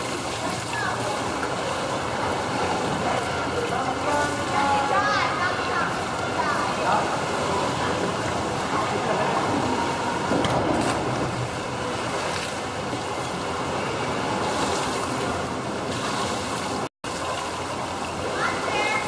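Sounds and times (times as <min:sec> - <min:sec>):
pool water lapping and sloshing: 0:00.0 - 0:19.0.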